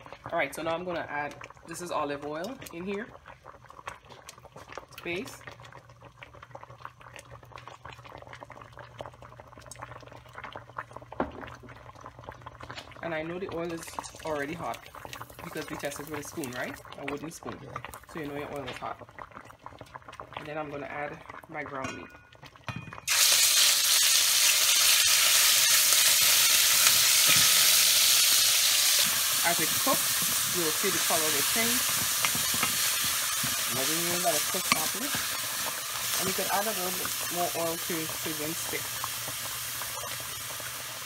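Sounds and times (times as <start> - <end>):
oil crackling in pot: 0.0 - 41.0
water bubbling in pot: 0.0 - 41.0
meat sizzling in hot oil: 23.0 - 41.0
wooden spoon stirring: 28.9 - 38.7.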